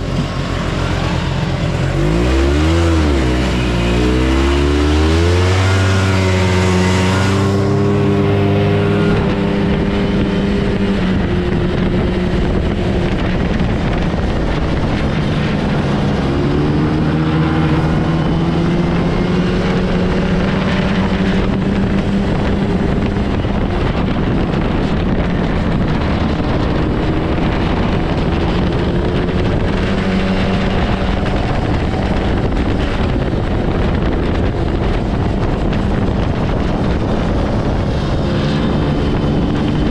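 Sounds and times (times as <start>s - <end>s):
rush of track and wind noise: 0.0s - 39.9s
snowmobile engine running: 0.0s - 39.9s.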